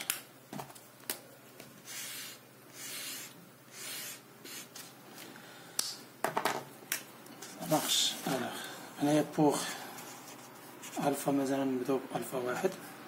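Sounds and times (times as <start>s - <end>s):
highlighter drawn across paper: 1.8s - 4.9s, 10.0s - 11.2s.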